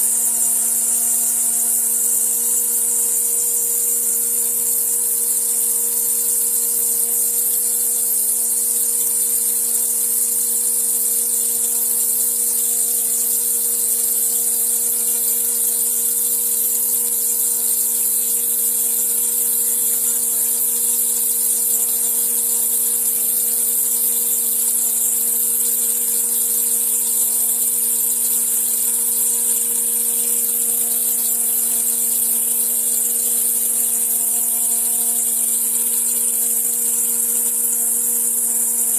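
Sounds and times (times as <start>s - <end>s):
stone router cutting granite: 0.0s - 38.9s.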